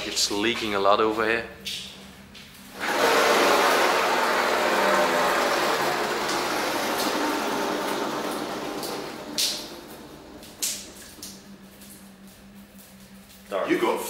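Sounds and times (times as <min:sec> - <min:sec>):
leaking water running: 0:02.7 - 0:13.6.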